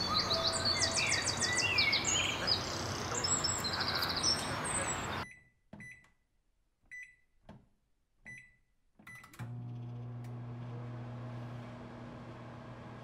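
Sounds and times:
outdoor park noise: 0.0 - 5.2
microwave keypad beeps: 5.2 - 6.0
microwave humming: 9.4 - 13.0.

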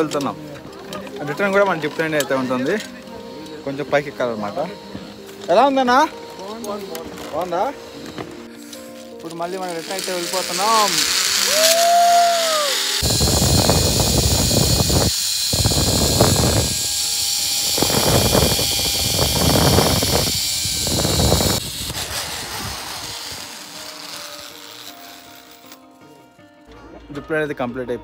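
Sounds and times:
zip-line pulleys whirring: 9.3 - 25.8
wind on microphone: 13.0 - 23.3.

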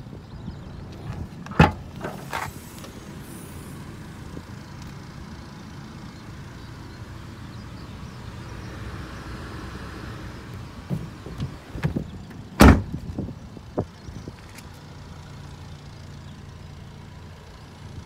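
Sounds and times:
tailgate clunk: 1.1 - 2.6, 10.8 - 13.2
tailgate latch click: 1.5 - 2.2, 12.6 - 12.9.

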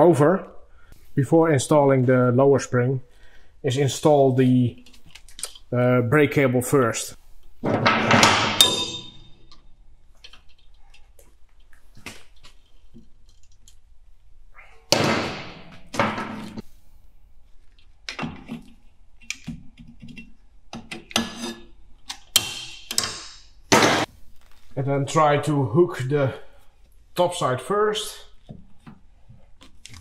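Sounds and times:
metal tools knocking and scraping: 7.6 - 9.6.

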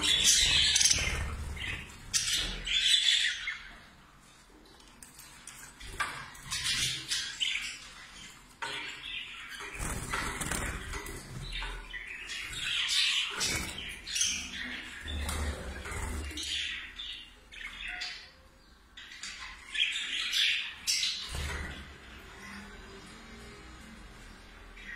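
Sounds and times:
budgerigars chattering and squawking: 0.0 - 3.8, 5.9 - 18.4.

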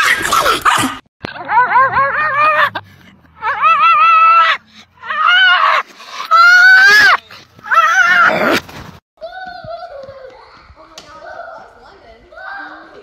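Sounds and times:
dog yowling: 0.3 - 2.7, 3.4 - 8.6.

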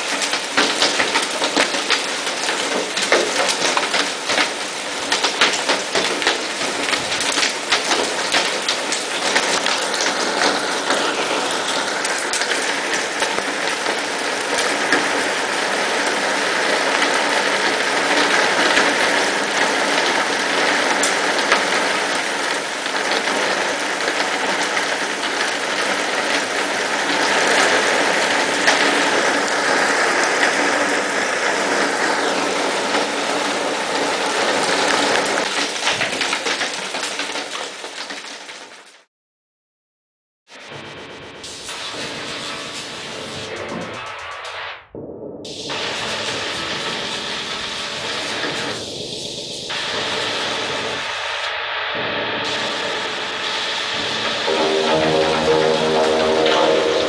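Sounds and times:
hail and rain clattering: 0.0 - 30.8, 32.8 - 38.9, 45.6 - 48.8.

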